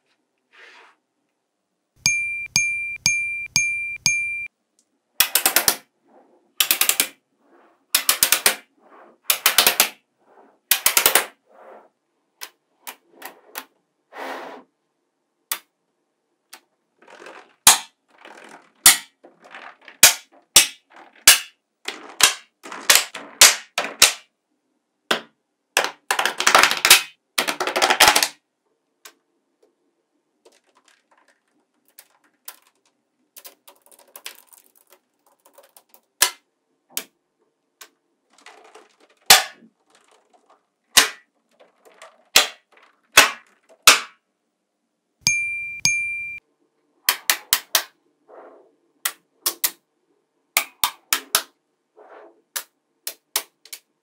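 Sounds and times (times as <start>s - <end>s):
magnetic balls snapping together: 6.6s - 7.2s, 15.5s - 15.7s, 49.0s - 49.8s
rapid clattering of balls: 16.6s - 24.3s, 25.1s - 28.4s, 29.1s - 36.4s, 37.5s - 44.3s.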